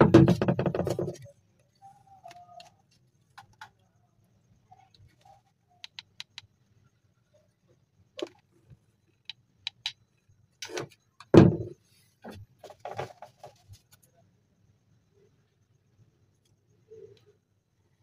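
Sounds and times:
cardboard thump: 0:11.4 - 0:11.8.

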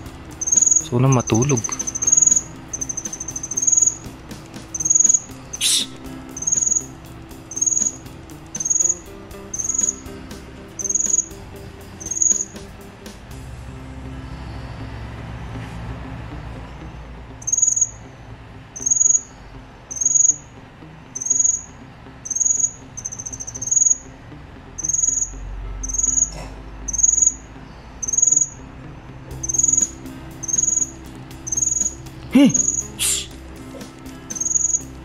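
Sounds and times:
cricket chirping: 0:00.0 - 0:12.7, 0:17.4 - 0:18.0, 0:18.8 - 0:20.5, 0:21.2 - 0:24.1, 0:24.8 - 0:28.6, 0:29.3 - 0:35.0.

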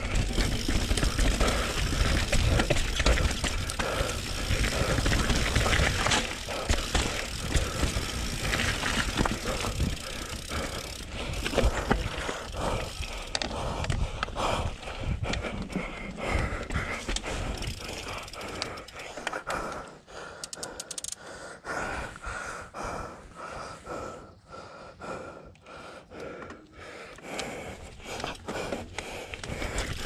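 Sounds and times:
bike tyres rumbling over dirt: 0:00.0 - 0:18.9, 0:27.8 - 0:30.0
bike clattering and rattling: 0:00.0 - 0:19.6, 0:27.9 - 0:30.0.

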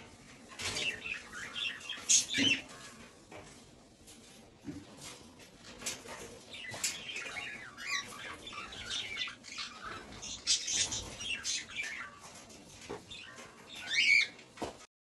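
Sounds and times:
cockatiels chirping: 0:06.6 - 0:12.2, 0:13.1 - 0:14.3.

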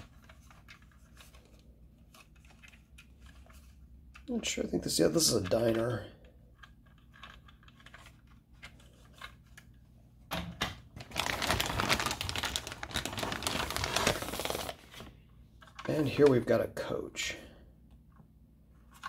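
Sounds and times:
plastic bag crinkling: 0:10.9 - 0:15.1.

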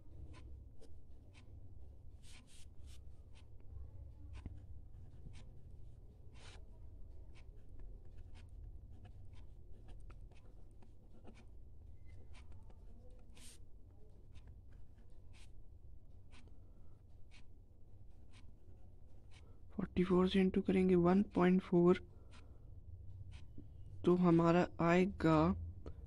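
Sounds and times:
faint low hum: 0:00.0 - 0:26.0
pen scratching on paper: 0:02.1 - 0:03.7, 0:04.3 - 0:15.6.

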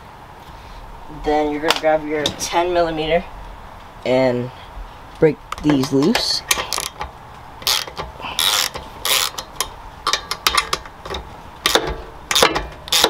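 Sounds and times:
ratchet wrench clicking: 0:06.1 - 0:13.0.

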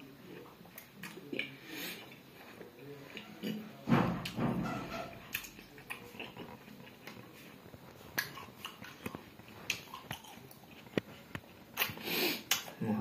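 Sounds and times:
wet chewing smacks: 0:05.3 - 0:12.8.

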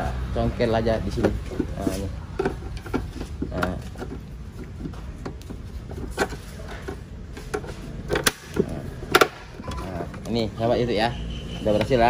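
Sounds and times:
plastic clicks and knocks: 0:01.1 - 0:10.3.

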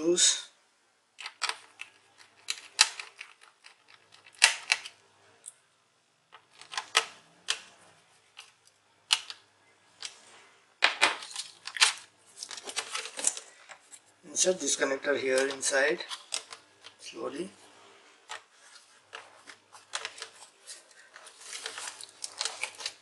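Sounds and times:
plastic clattering: 0:01.2 - 0:05.0, 0:06.3 - 0:07.7, 0:10.8 - 0:14.0, 0:15.3 - 0:17.1, 0:18.2 - 0:23.0.

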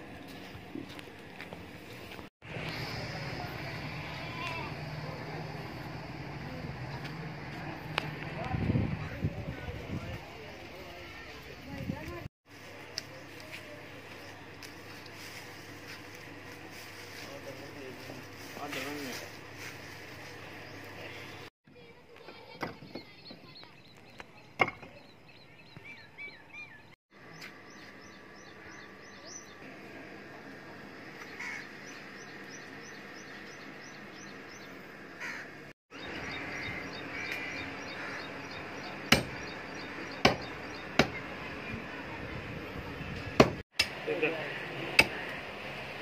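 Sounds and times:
small birds chirping: 0:22.8 - 0:29.6, 0:31.0 - 0:42.0
crows cawing: 0:31.3 - 0:31.8, 0:35.2 - 0:35.6, 0:36.3 - 0:38.6
hatchet chopping meat and bone: 0:39.0 - 0:41.2, 0:43.4 - 0:44.0, 0:45.0 - 0:45.3.

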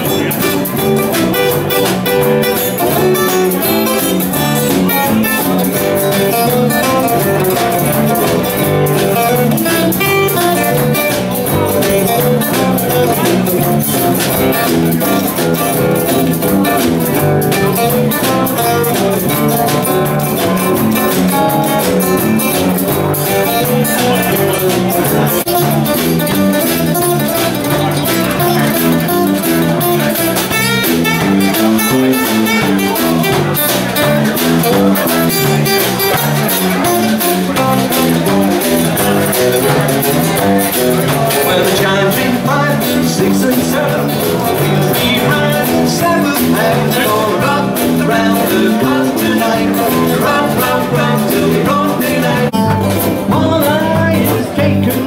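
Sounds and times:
strummed guitar: 0:00.0 - 0:55.0
walking bass line: 0:00.0 - 0:55.0.

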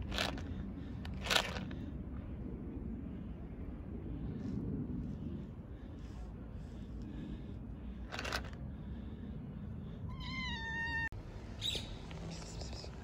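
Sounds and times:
low steady rumble: 0:00.0 - 0:13.0
cat meowing: 0:10.1 - 0:11.1.

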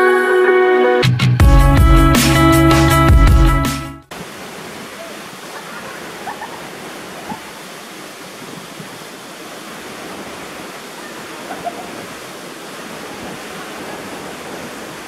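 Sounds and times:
waterfall rushing: 0:04.1 - 0:15.0.

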